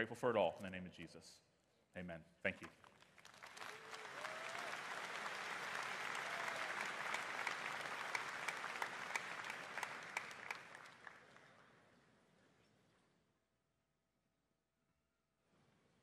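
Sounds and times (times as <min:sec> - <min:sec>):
large audience applauding: 0:02.9 - 0:11.7.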